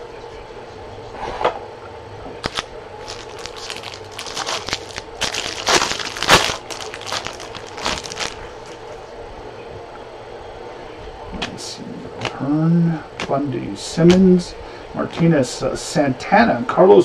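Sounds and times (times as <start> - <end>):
foil wrapper tearing and crinkling: 2.4 - 8.9.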